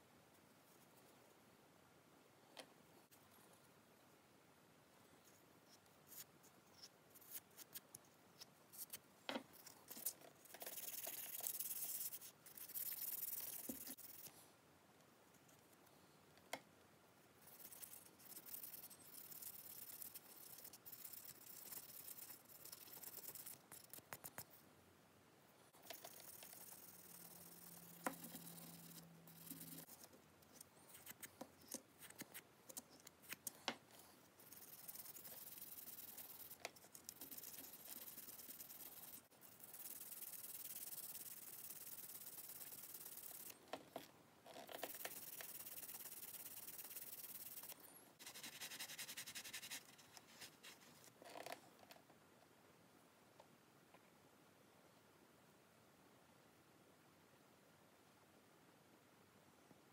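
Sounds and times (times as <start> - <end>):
rubbing and scratching of polishing: 5.7 - 14.3, 17.4 - 24.6, 25.8 - 32.9, 34.2 - 43.6, 44.5 - 51.4.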